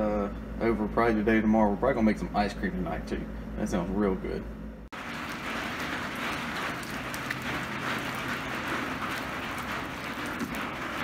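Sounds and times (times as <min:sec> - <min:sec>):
heavy rain on puddled ground: 0:05.0 - 0:11.0.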